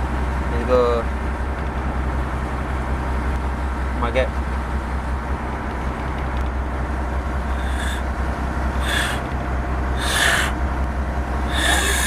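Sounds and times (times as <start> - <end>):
boat engine low hum: 0.0 - 12.0
short hissing bursts: 7.5 - 8.0, 8.8 - 9.2, 10.0 - 10.6, 11.5 - 12.0.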